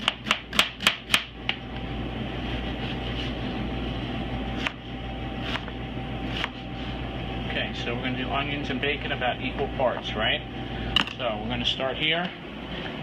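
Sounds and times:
knife chopping on cutting board: 0:00.0 - 0:01.3, 0:04.6 - 0:04.8, 0:05.4 - 0:05.7, 0:06.3 - 0:06.6
mechanical fan hum: 0:00.0 - 0:13.0.

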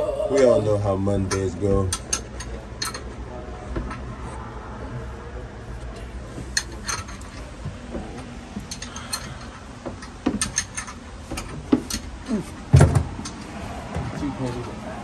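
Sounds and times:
metal tools clinking: 0:01.2 - 0:03.2, 0:06.5 - 0:13.6.

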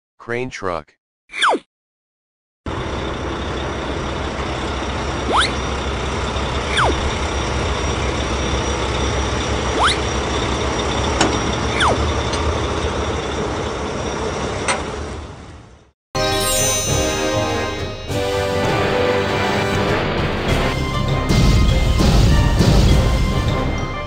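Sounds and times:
truck engine rumble: 0:02.7 - 0:15.9, 0:17.4 - 0:24.0
whistle-like pitch sweeps: 0:05.3 - 0:05.6, 0:06.7 - 0:07.0, 0:09.8 - 0:10.2, 0:11.7 - 0:12.0, 0:16.2 - 0:19.2.

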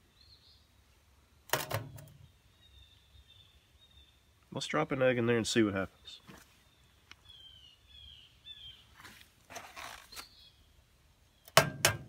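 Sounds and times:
faint high bird chirps: 0:05.9 - 0:09.2, 0:09.8 - 0:11.6
soft rustling: 0:08.9 - 0:10.3.

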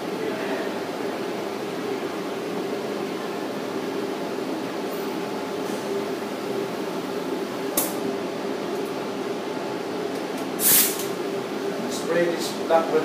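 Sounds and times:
spray gun hissing: 0:10.6 - 0:11.0.

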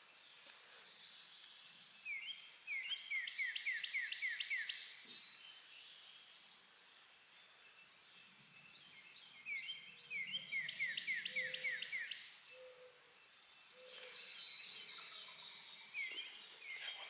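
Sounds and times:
songbird singing: 0:00.0 - 0:17.0.

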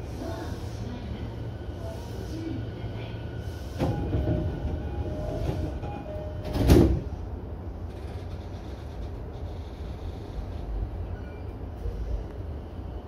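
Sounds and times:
train low hum: 0:00.0 - 0:13.0
train doors closing thud: 0:03.8 - 0:07.2.

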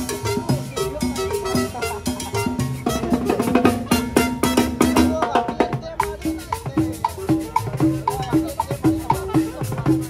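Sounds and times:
conga: 0:00.0 - 0:10.0
latin dance band playing: 0:00.0 - 0:10.0.

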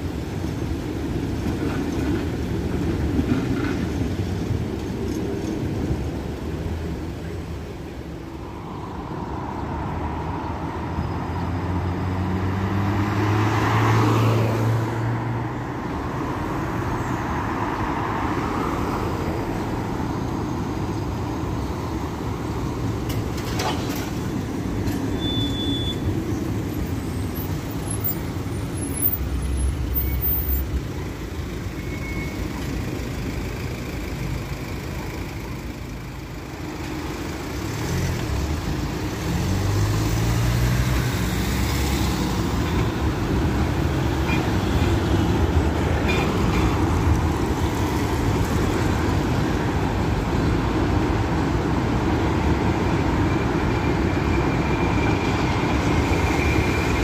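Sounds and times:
street traffic: 0:00.0 - 0:57.0
tram passing hum: 0:00.0 - 0:57.0
tram whine: 0:18.3 - 0:57.0.

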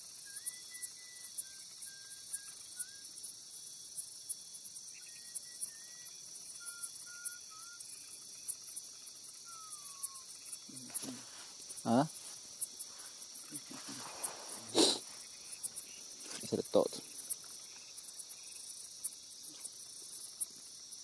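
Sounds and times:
insects buzzing and ticking: 0:00.0 - 0:21.0
faint whistled notes: 0:00.2 - 0:03.1, 0:05.0 - 0:07.9.

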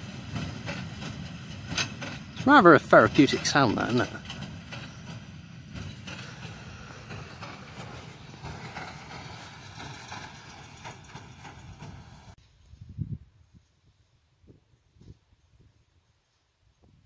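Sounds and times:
baler mechanical clatter: 0:00.0 - 0:12.4
tractor engine running: 0:00.0 - 0:12.4.

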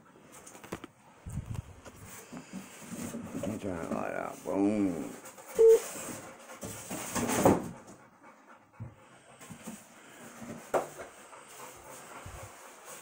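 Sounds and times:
panting breaths: 0:04.8 - 0:13.0.

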